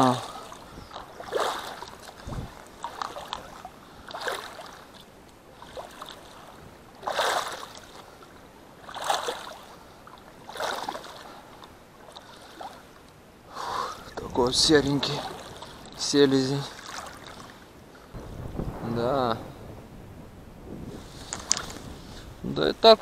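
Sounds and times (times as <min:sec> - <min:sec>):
wading through water splashes: 0:00.0 - 0:18.2.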